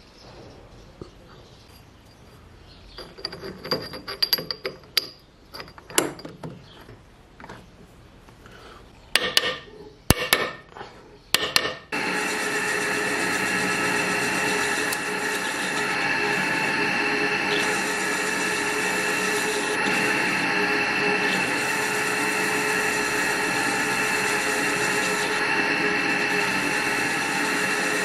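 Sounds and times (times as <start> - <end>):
metal clinks and knocks: 2.9 - 6.6
lathe running with whine: 12.0 - 28.0.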